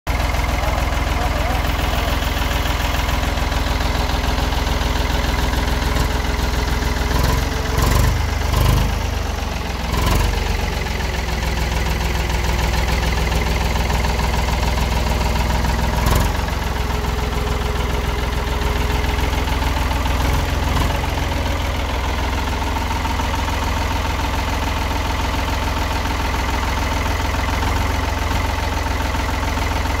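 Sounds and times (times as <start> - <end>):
diesel tractor engine idling: 0.1 - 30.0.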